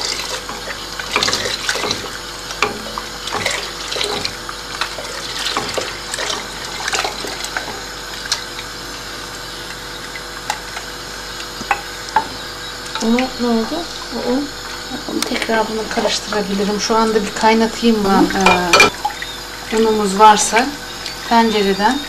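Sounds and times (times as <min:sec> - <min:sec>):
liquid pouring into pot: 0:00.0 - 0:12.2
soup boiling: 0:00.0 - 0:22.0.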